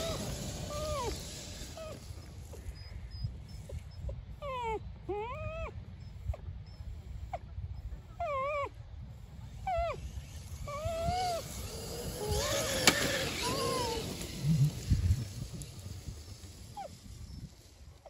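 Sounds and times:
toy truck electric motor whining: 0.0 - 3.9, 9.5 - 18.0.

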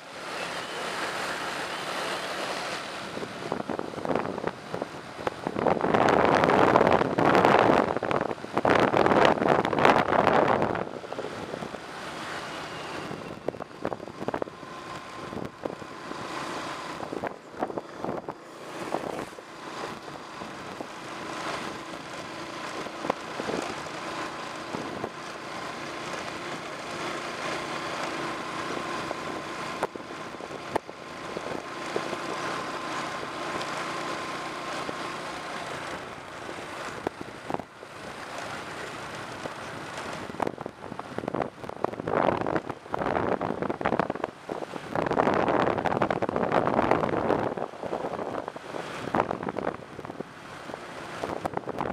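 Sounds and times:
wind on microphone: 3.0 - 11.8, 12.8 - 20.9, 39.4 - 51.9.

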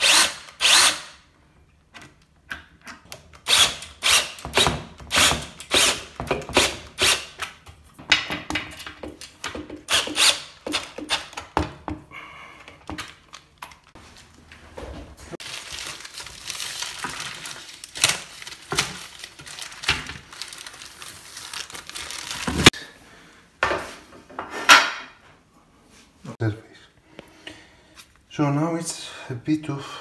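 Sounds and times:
plastic packaging crinkling: 15.4 - 22.7.

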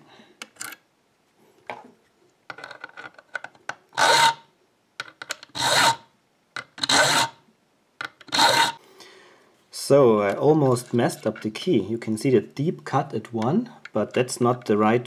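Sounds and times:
file rasping on metal: 4.0 - 4.4, 5.6 - 6.1, 6.8 - 7.4, 8.3 - 8.8.

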